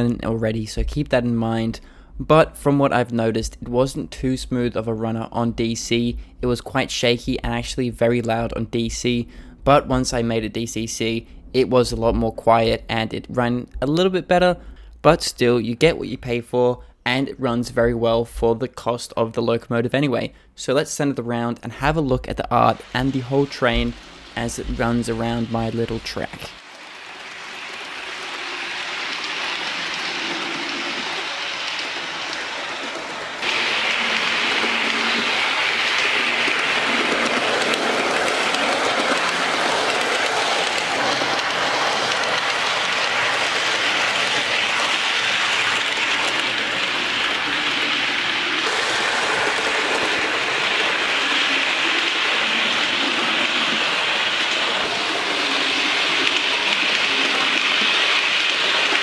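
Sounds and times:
model train whirring on track: 0:22.8 - 0:59.0.

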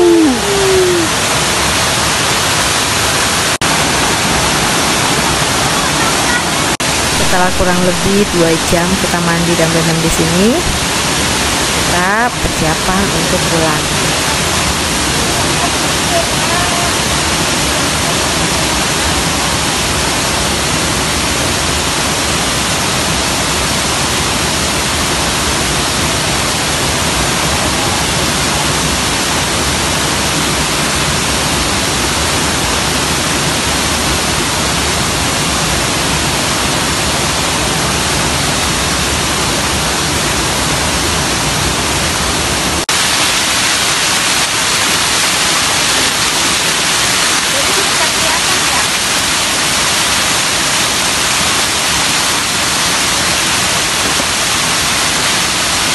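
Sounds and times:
water rushing over rocks: 0:00.0 - 0:55.9.

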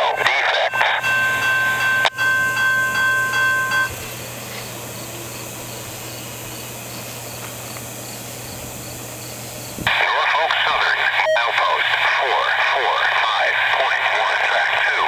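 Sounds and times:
railroad crossing bell dinging: 0:00.0 - 0:05.6
steady background hum: 0:00.0 - 0:15.0.

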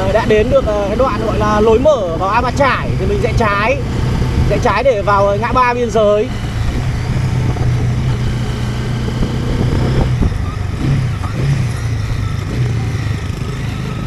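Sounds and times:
motorbike engine running: 0:00.0 - 0:14.0
road and wind noise: 0:00.0 - 0:14.0.

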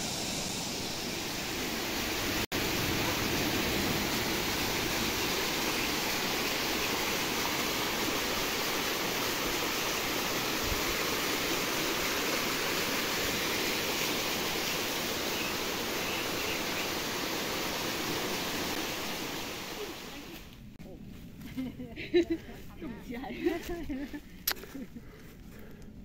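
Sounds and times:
waterfall rushing over rocks: 0:00.0 - 0:20.5.

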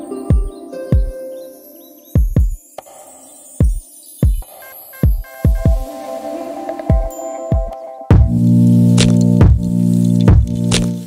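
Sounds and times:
electronic music with kick drum: 0:00.0 - 0:01.4, 0:02.1 - 0:11.0
loud held synth chord: 0:05.6 - 0:09.0.

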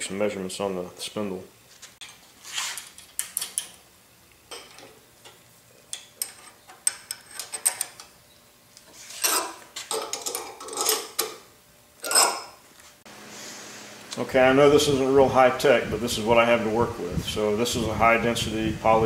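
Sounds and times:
steel parts clinking and tapping: 0:02.8 - 0:03.8, 0:04.5 - 0:08.2, 0:09.2 - 0:11.4, 0:12.0 - 0:12.6
metal scraping: 0:08.9 - 0:11.2, 0:12.0 - 0:12.6.

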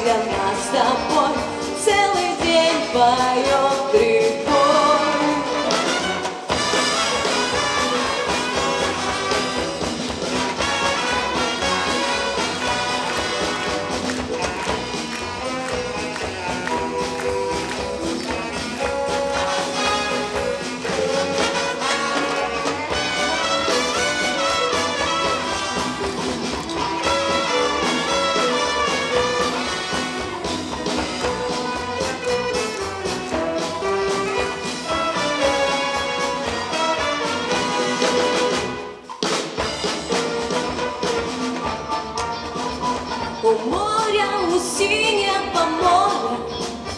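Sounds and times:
brass band playing: 0:00.0 - 0:46.9
drum kit beat: 0:00.0 - 0:46.9.

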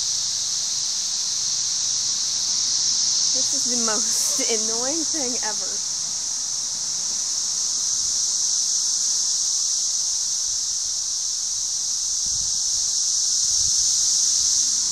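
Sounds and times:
cicadas buzzing: 0:00.0 - 0:14.9.

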